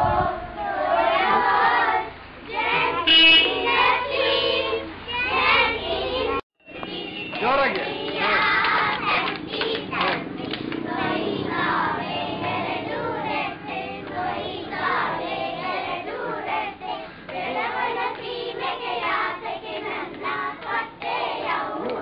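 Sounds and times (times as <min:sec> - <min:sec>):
children singing: 0:00.6 - 0:07.2, 0:08.0 - 0:22.0
hand clapping: 0:06.8 - 0:10.8.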